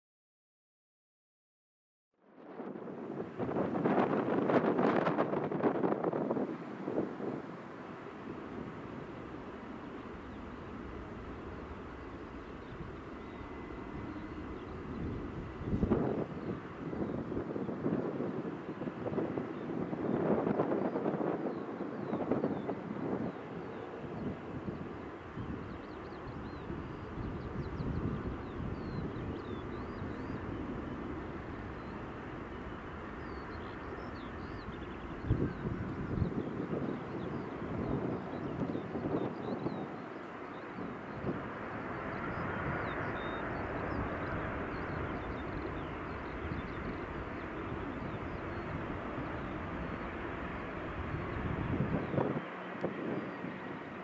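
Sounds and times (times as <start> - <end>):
distant jet engine rumble: 2.2 - 54.0
faint high whine: 2.2 - 54.0
wind gust on microphone: 2.4 - 54.0
small birds chirping: 21.5 - 50.3.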